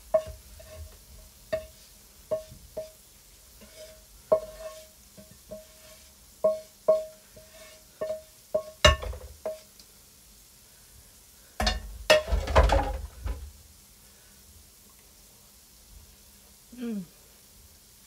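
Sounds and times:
clatter of pan and utensils: 0.1 - 3.0, 3.6 - 9.7, 11.6 - 13.5.

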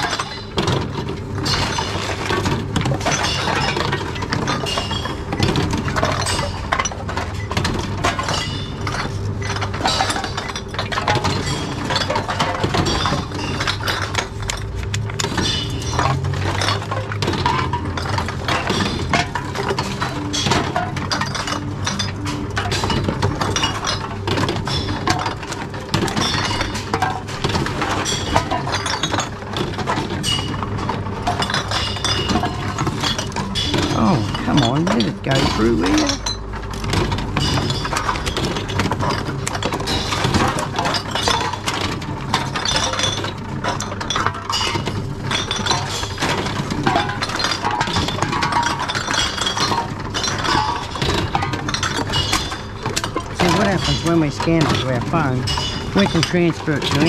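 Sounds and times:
glass bottles clinking: 0.0 - 57.0.

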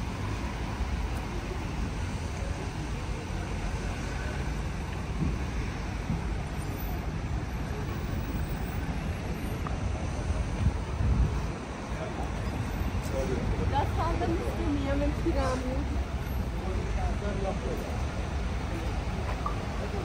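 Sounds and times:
road traffic rumble: 0.0 - 20.0.

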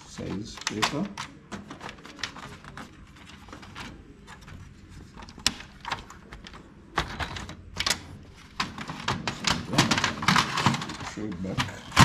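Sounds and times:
printer tray clatter: 5.2 - 12.0.

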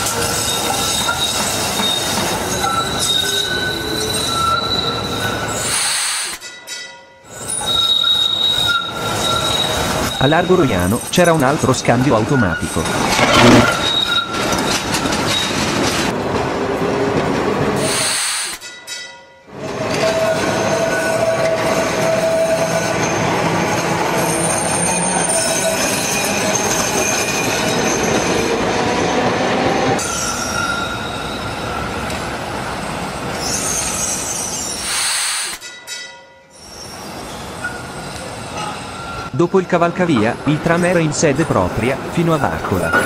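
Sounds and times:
tram wheels rumbling on track: 0.0 - 6.0, 7.3 - 18.2, 19.5 - 34.9, 36.9 - 43.0
high wheel squeal: 0.1 - 6.4, 7.3 - 15.7, 19.8 - 28.5, 30.0 - 32.0, 33.2 - 35.6, 36.5 - 39.5.

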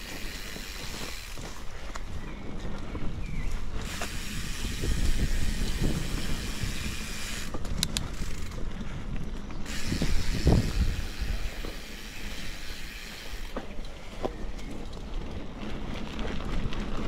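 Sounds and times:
grass swishing against bike: 0.0 - 2.0, 3.5 - 8.4, 9.7 - 14.3
bike tyres rumbling on dirt: 0.0 - 17.0.

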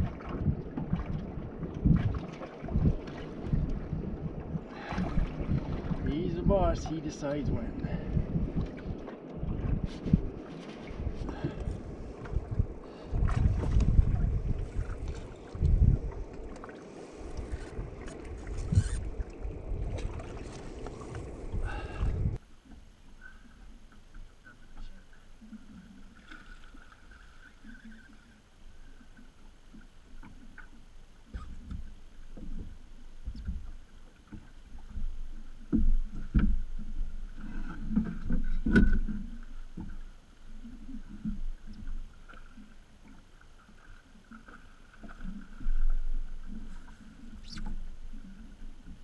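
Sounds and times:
water slapping against boat hull: 0.0 - 22.4, 30.2 - 43.2.

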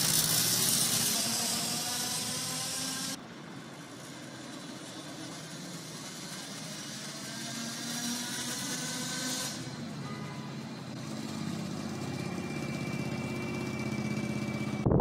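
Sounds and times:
city street traffic hum: 0.0 - 15.0
vehicle approaching: 0.0 - 15.0.

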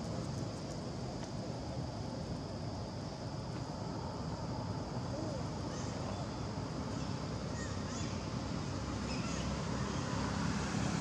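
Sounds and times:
faint high-pitched calls: 5.1 - 8.3, 9.0 - 10.2.

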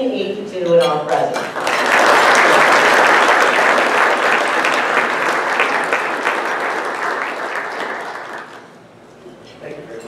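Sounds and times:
audience applauding: 1.4 - 8.8.

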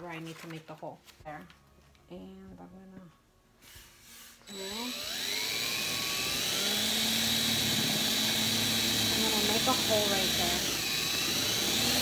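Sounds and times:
cordless drill boring into wood: 4.5 - 12.0.

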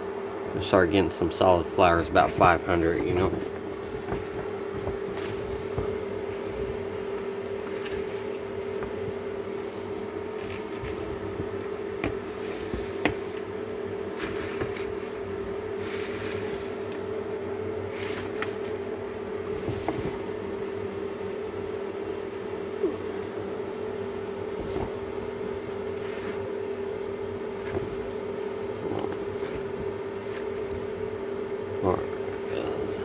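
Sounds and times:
electrical hum: 0.0 - 33.0
crinkly rustles: 2.0 - 13.5.

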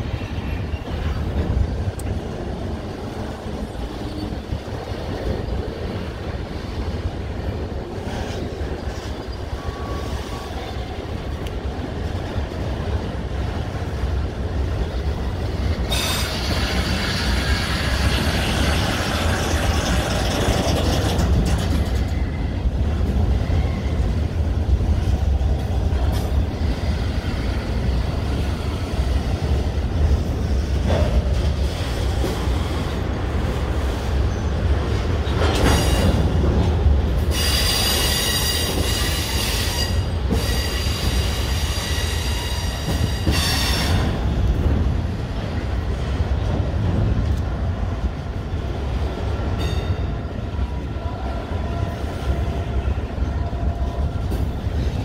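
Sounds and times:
freight train rumbling: 0.0 - 55.0
train wheels squealing: 3.7 - 4.7, 8.1 - 11.0, 15.8 - 22.5, 23.3 - 24.3, 35.6 - 36.3, 37.3 - 44.2.

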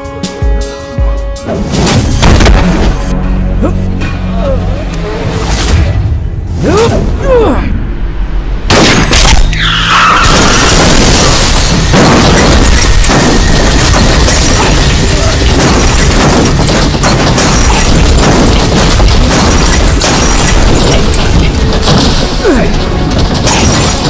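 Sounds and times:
vehicle crashing and rolling over: 8.7 - 24.0.

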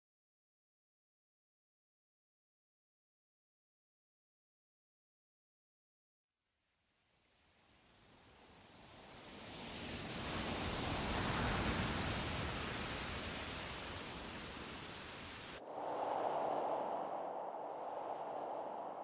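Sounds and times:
rushing noise: 12.2 - 19.0
steady sound: 15.6 - 19.0.

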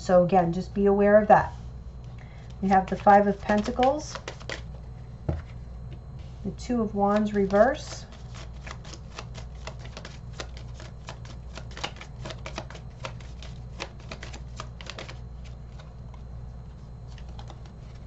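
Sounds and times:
cards being shuffled: 2.4 - 4.7, 7.1 - 18.0.

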